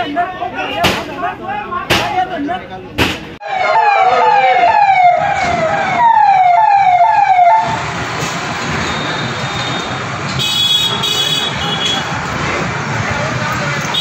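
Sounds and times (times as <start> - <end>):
traffic and engine noise: 0.0 - 14.0
emergency vehicle siren wailing: 3.4 - 8.8.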